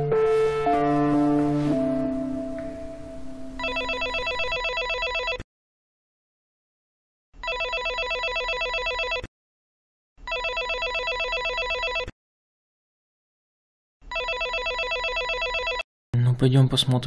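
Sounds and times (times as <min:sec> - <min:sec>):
electric doorbell ringing: 0:03.6 - 0:05.3.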